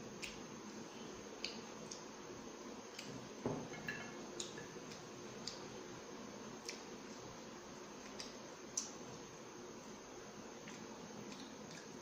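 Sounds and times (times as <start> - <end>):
knock on glass plate: 3.4 - 4.1.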